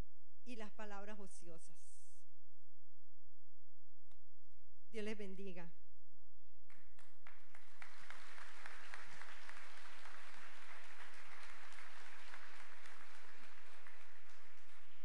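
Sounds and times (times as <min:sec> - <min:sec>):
congregation applauding: 0:06.7 - 0:15.0.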